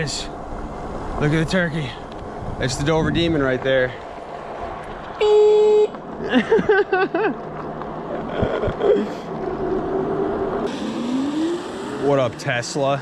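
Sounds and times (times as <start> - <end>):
vehicle horn toot: 5.2 - 5.9.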